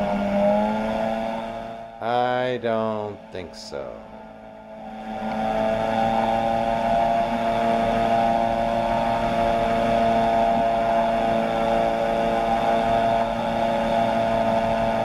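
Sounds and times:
aircraft engine and propeller hum: 0:00.0 - 0:15.0.

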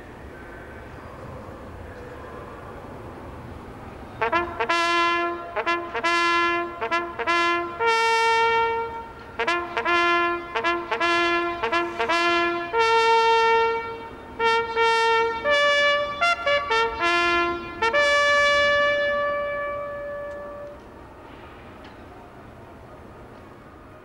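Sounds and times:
trumpet bugle call: 0:04.2 - 0:20.8.

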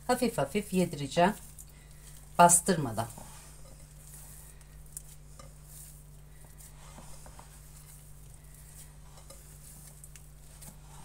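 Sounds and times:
steady low hum: 0:00.0 - 0:11.0
hands squishing cookie dough: 0:00.1 - 0:11.0.

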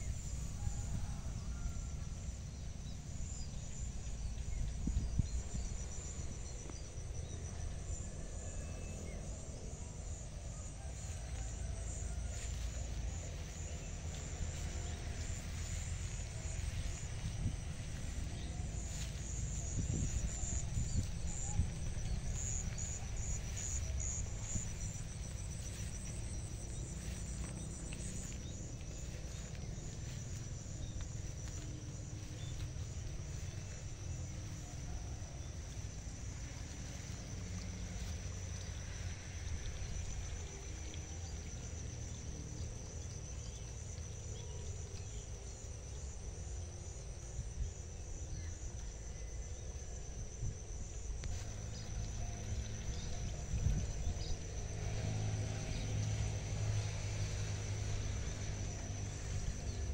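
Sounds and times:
low rumble: 0:00.0 - 0:41.9
insects chirring: 0:00.0 - 0:59.9.

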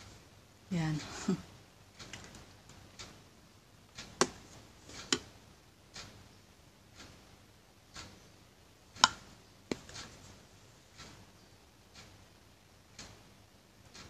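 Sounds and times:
makeup items clicking: 0:02.0 - 0:02.5.

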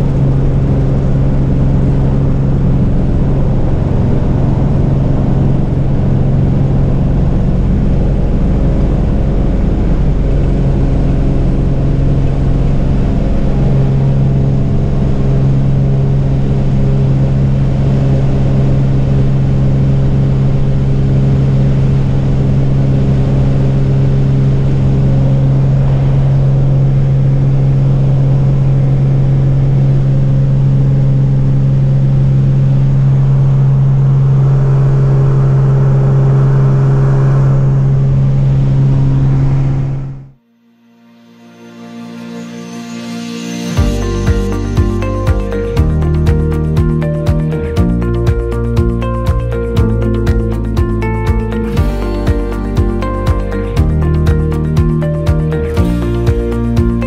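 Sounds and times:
propeller plane engine drone: 0:00.0 - 0:40.4.

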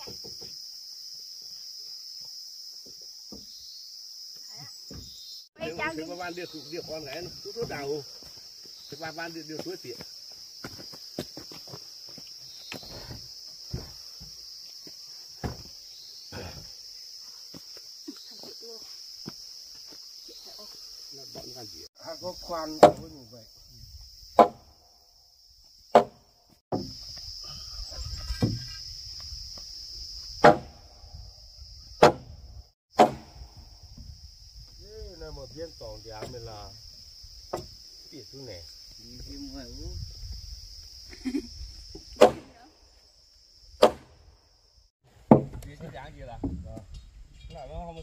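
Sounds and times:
insects trilling: 0:00.0 - 0:48.0
loud sharp knocks: 0:22.8 - 0:23.1, 0:24.4 - 0:24.7, 0:25.9 - 0:26.9, 0:30.4 - 0:30.8, 0:32.0 - 0:32.3, 0:33.0 - 0:33.4, 0:43.8 - 0:44.1, 0:45.3 - 0:45.6.

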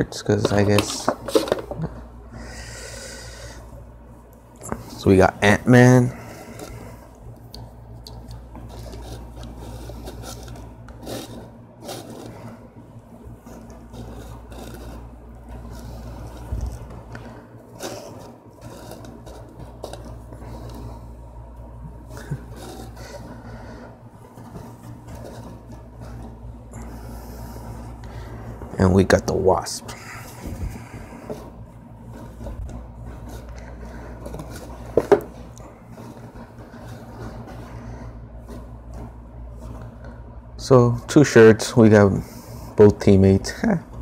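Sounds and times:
steady low hum: 0:00.0 - 0:44.0.

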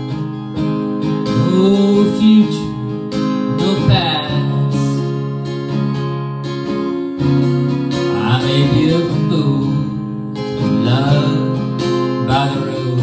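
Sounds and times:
acoustic guitar strumming: 0:00.0 - 0:13.0
man singing: 0:01.2 - 0:05.5, 0:08.0 - 0:13.0.

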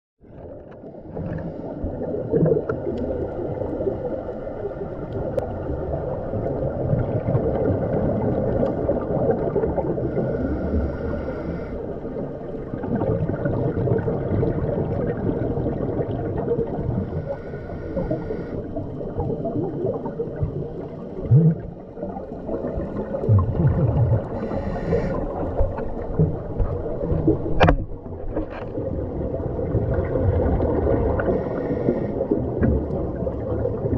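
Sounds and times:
gurgling underwater bubbles: 0:00.2 - 0:33.9
regulator inhalation hiss: 0:10.1 - 0:11.8, 0:17.1 - 0:18.6, 0:24.4 - 0:25.3, 0:31.3 - 0:32.2.

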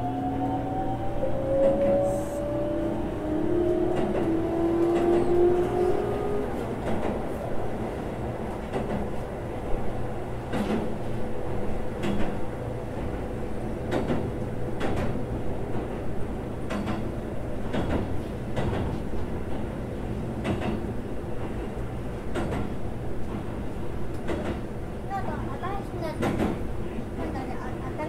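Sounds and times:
train wheels rumbling on rail: 0:00.0 - 0:28.0
rail click-clack: 0:01.5 - 0:02.2, 0:03.6 - 0:28.0.

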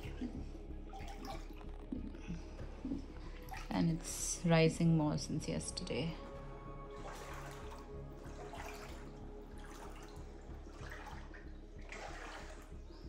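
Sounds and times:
feet sloshing through water: 0:00.0 - 0:04.1, 0:06.9 - 0:13.0.

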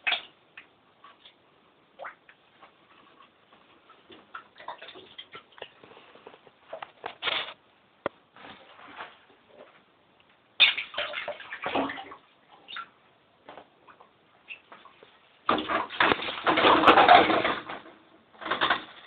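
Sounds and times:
water splashing: 0:04.2 - 0:05.8, 0:10.6 - 0:13.0.

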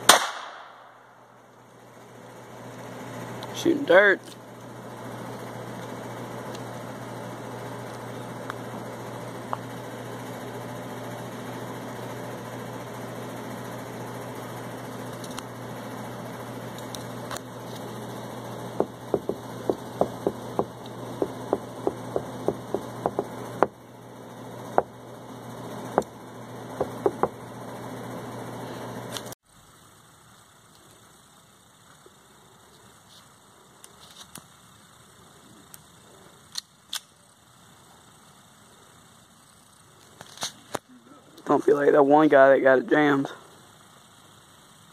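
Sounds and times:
pistol gunshots: 0:00.0 - 0:01.0
steady low hum: 0:00.0 - 0:44.9.

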